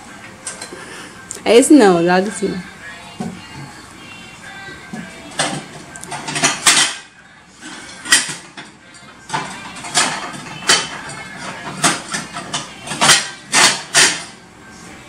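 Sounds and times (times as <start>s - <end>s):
dishes clinking: 0.4s - 0.9s, 4.6s - 7.1s, 7.7s - 14.4s.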